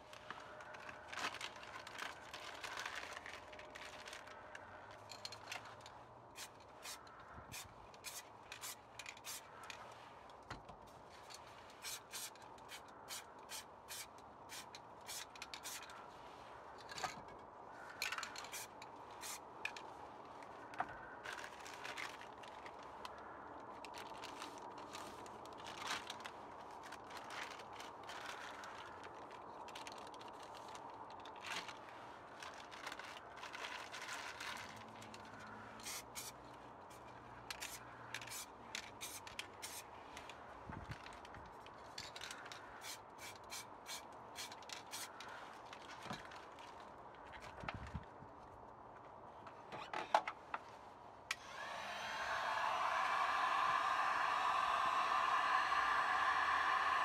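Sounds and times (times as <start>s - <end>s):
plastic bag crinkling: 0.0s - 5.8s.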